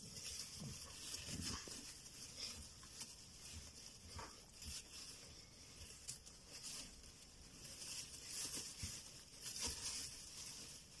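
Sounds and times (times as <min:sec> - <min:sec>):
straw rustling and crackling: 0:00.0 - 0:11.0.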